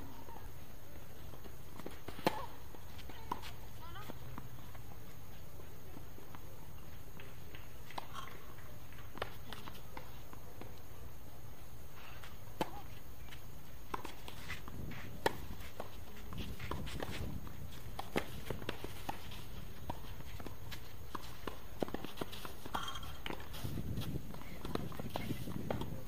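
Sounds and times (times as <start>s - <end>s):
low background noise: 0.0s - 26.0s
tennis ball bouncing: 1.8s - 4.5s.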